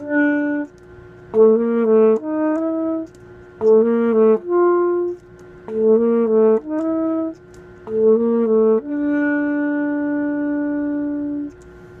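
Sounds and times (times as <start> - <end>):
saxophone melody: 0.0 - 11.6.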